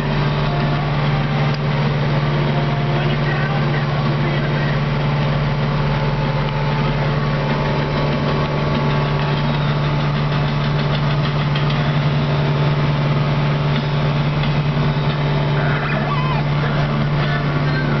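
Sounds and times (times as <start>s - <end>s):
tractor diesel engine drone: 0.0s - 18.0s
cab rattling: 2.5s - 12.6s.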